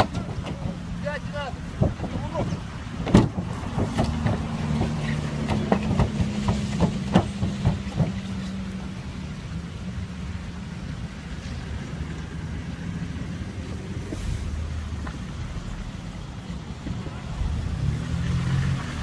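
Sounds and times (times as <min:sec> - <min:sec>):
low vehicle hum: 0:00.0 - 0:19.0
feet thudding on metal car roof: 0:01.8 - 0:08.3.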